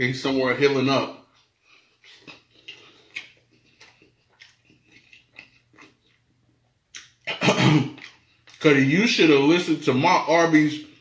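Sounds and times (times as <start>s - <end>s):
man chewing: 1.3s - 8.6s.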